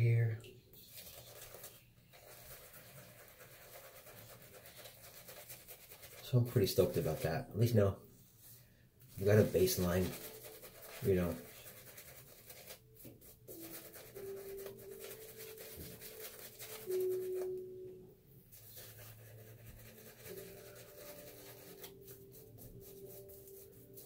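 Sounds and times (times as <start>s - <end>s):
soft background music: 0.0s - 24.0s
shaving brush swishing: 9.1s - 17.6s, 18.5s - 24.0s.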